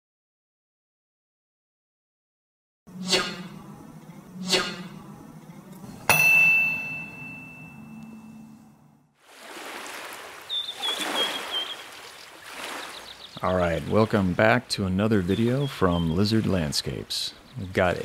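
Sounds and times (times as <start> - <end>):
bright metallic ding: 6.1 - 8.7
high chirps: 10.5 - 13.4.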